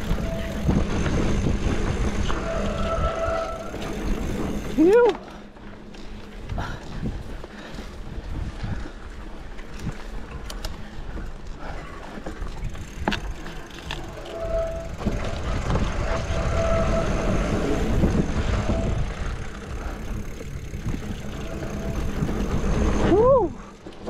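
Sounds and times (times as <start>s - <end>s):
bike rattling over bumps: 0.0s - 24.0s
wind and tyre rumble: 0.0s - 24.0s.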